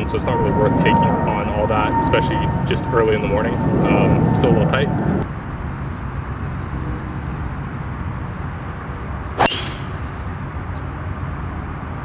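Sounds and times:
low background rumble: 0.0 - 5.7
golf club striking ball: 9.4 - 10.3.

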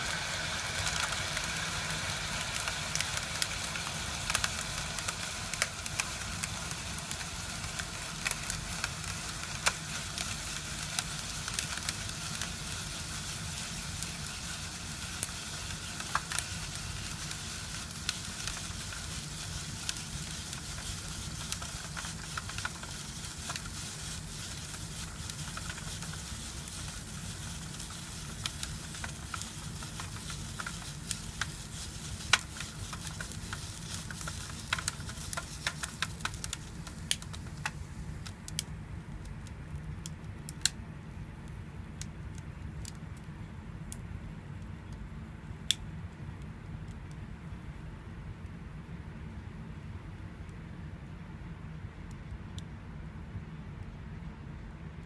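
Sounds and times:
cryogenic bath hissing: 0.0 - 38.3
freezing paper crackling: 0.0 - 38.4.

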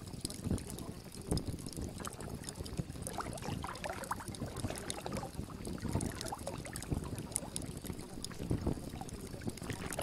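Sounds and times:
bubbling plinks: 0.0 - 10.0
water washing: 8.4 - 10.0.

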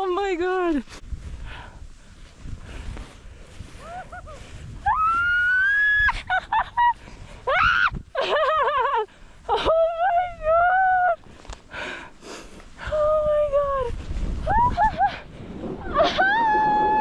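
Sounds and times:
rush of wind and snow: 0.0 - 17.0
person whooping and yelling: 3.8 - 6.2, 7.5 - 8.0, 14.4 - 15.1, 15.8 - 17.0.

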